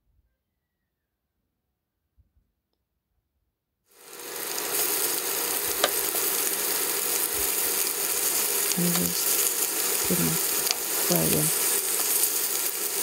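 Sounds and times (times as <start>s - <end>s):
steak sizzling in hot oil: 3.9s - 13.0s.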